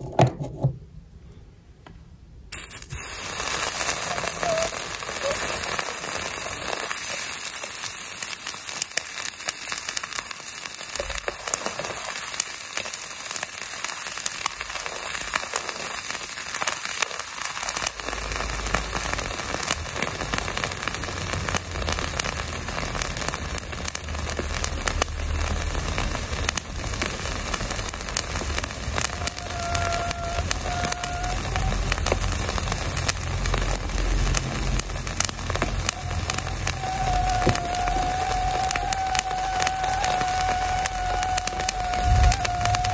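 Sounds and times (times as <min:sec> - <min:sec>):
chicken skin sizzling and crackling: 0:02.6 - 0:42.9.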